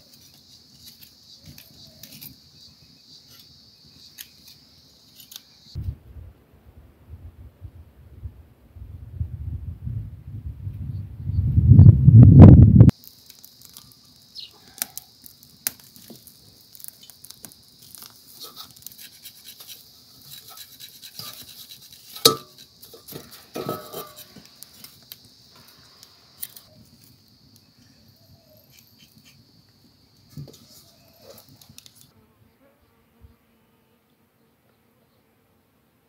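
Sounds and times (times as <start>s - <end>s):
knife scraping: 3.2s - 5.6s, 18.4s - 24.9s
steady high hiss: 12.9s - 32.2s
knocks against bone and metal bowl: 22.2s - 22.6s.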